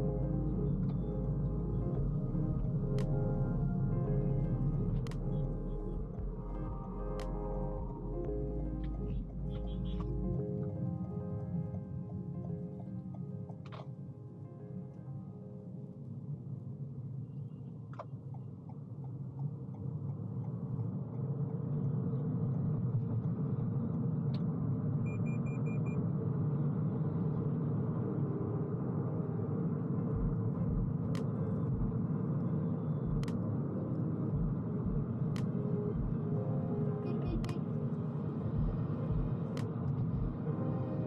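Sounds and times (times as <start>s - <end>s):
road and tyre rumble in car cabin: 0.0s - 10.4s, 29.6s - 33.3s, 37.1s - 41.0s.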